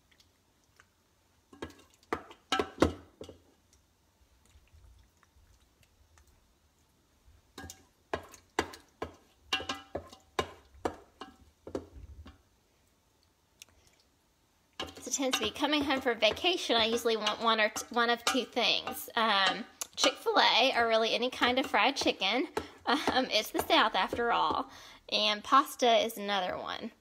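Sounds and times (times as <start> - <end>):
spoon clinking and scraping cookware: 7.6 - 11.8, 14.8 - 24.6.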